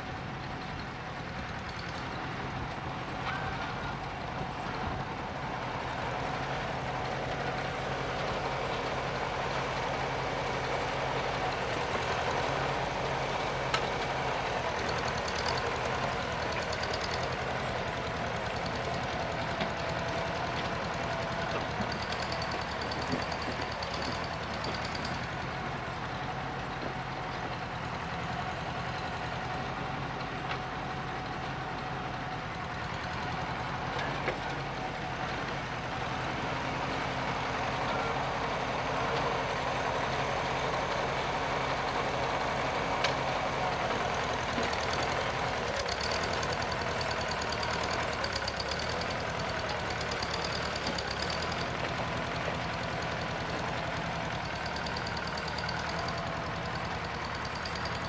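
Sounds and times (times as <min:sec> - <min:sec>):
tractor engine running: 0:00.0 - 0:58.0.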